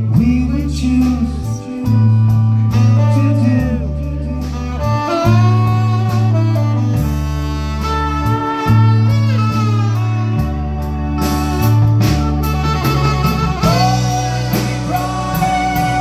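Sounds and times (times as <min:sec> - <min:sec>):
deep bass notes: 0:00.0 - 0:16.0
sliding lead melody: 0:00.0 - 0:16.0.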